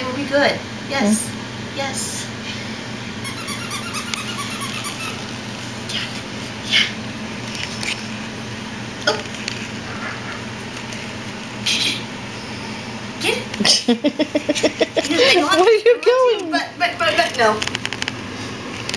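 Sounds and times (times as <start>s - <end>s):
steady low hum: 0.0s - 18.9s
squeaky dog toy squeaking: 3.2s - 5.3s.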